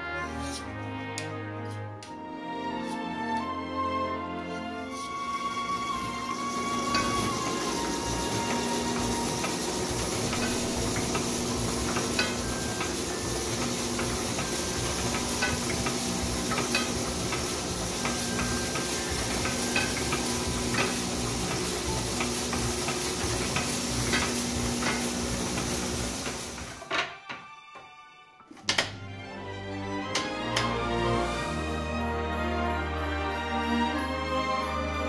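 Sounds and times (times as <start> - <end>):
ink rollers hissing: 4.5 - 26.9.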